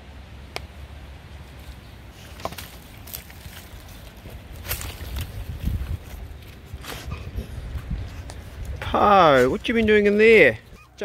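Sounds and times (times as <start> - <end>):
low microphone rumble: 3.5 - 10.8.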